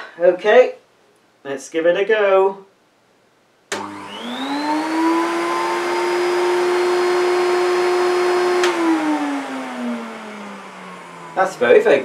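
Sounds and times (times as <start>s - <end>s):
vacuum cleaner switch click: 3.7s - 4.1s, 8.6s - 8.9s
vacuum cleaner motor whine: 3.7s - 12.0s.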